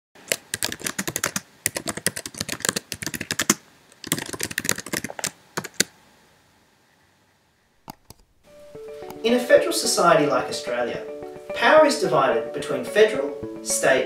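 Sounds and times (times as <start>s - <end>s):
computer keyboard typing: 0.2s - 5.9s.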